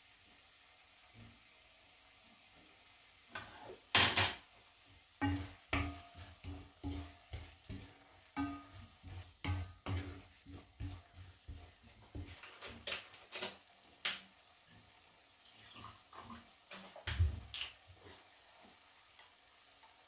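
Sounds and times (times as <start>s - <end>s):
wooden spoon scraping a pot: 5.2s - 13.1s.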